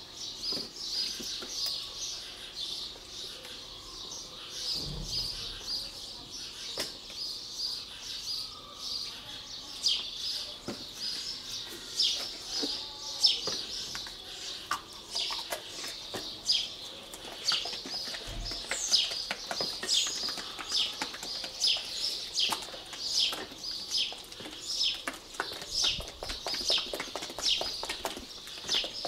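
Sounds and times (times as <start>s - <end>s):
paint being stirred in a cup: 14.0s - 29.0s.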